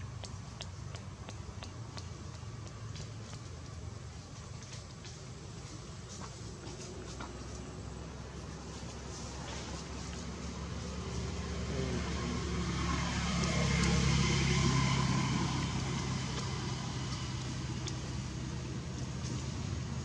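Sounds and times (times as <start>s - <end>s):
vehicle passing: 5.7s - 20.0s.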